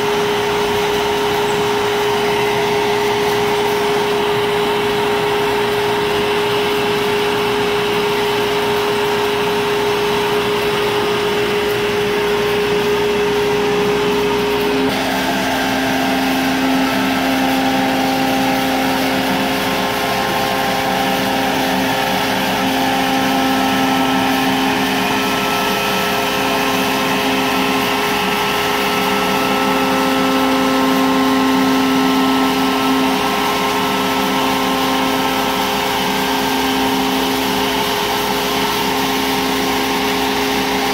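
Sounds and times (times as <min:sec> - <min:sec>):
router spindle cutting panel: 0:00.0 - 0:40.9.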